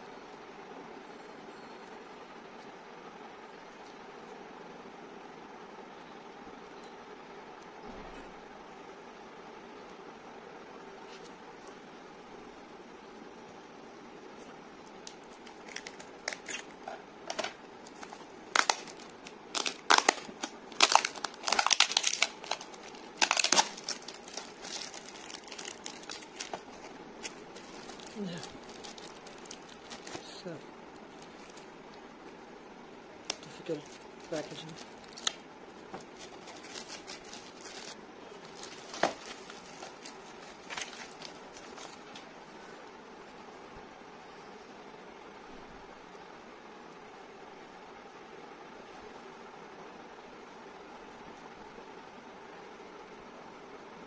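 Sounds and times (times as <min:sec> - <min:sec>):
plastic shrink-wrap crinkling: 0:14.8 - 0:32.3, 0:33.2 - 0:42.3.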